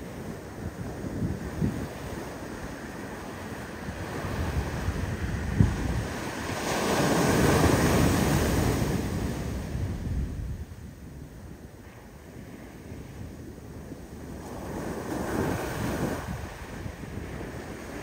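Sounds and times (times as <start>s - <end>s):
wave breaking on beach: 0.0s - 10.1s, 14.1s - 18.0s
wind buffeting microphone: 0.0s - 18.0s.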